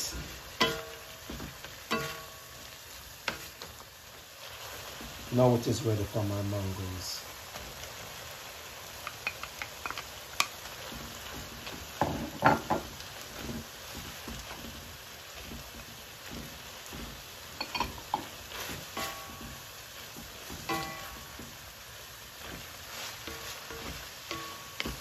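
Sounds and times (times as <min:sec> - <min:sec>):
stir-fry sizzling in a pan: 0:00.0 - 0:25.0
spoon scraping a pan: 0:00.2 - 0:02.6, 0:03.2 - 0:03.8, 0:15.4 - 0:21.7, 0:22.4 - 0:25.0.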